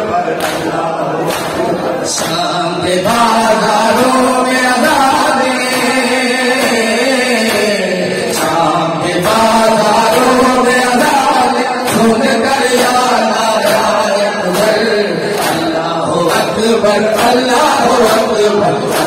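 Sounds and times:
crowd of men chanting: 0:00.0 - 0:19.0
hands slapping chests: 0:00.4 - 0:02.5, 0:11.0 - 0:19.0.

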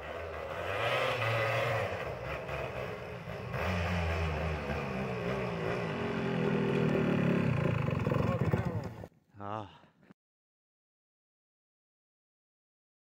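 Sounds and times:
two-stroke engine revving: 0:00.0 - 0:09.1.

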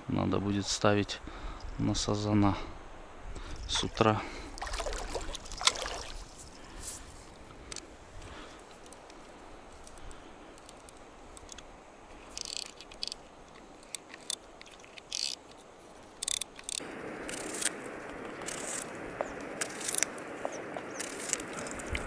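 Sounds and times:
outdoor background hiss: 0:00.0 - 0:22.0
fishing reel clicks: 0:12.3 - 0:13.2, 0:15.0 - 0:15.4, 0:16.2 - 0:17.4.

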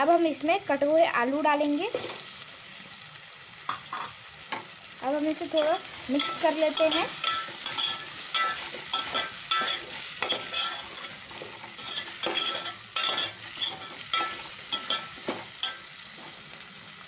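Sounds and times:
vegetables sizzling in oil: 0:00.0 - 0:17.0
metal spoon scraping a pot: 0:05.8 - 0:16.4.

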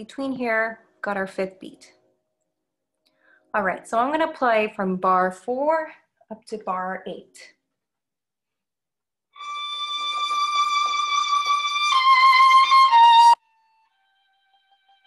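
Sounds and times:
solo violin playing: 0:09.4 - 0:15.0.

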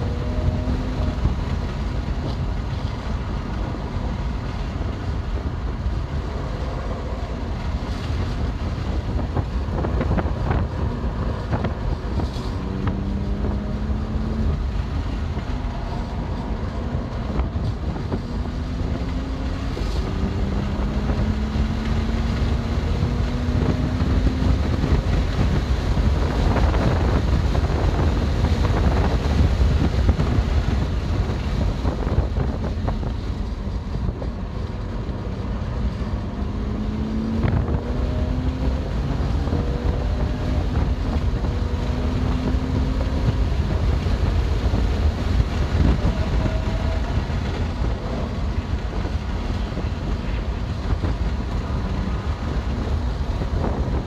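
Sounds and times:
car engine revving under load: 0:00.0 - 0:54.0
road and wind rumble: 0:00.0 - 0:54.0.

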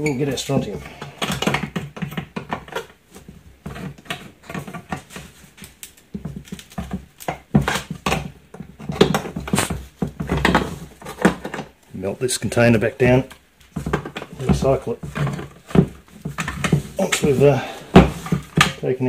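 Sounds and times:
metal rim scraping and creaking: 0:00.0 - 0:01.7, 0:10.7 - 0:19.0.

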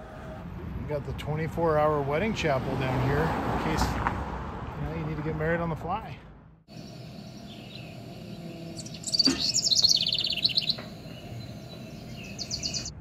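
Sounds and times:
small birds chirping: 0:06.7 - 0:13.0.

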